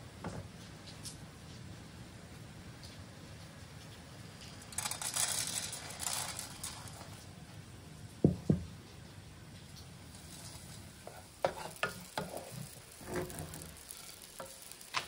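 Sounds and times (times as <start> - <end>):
berries pattering into a pan: 3.8 - 7.4, 8.2 - 15.0.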